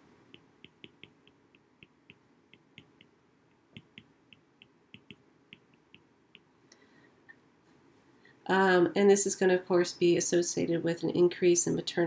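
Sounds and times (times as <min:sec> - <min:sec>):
stylus tapping on glass screen: 0:00.3 - 0:06.5.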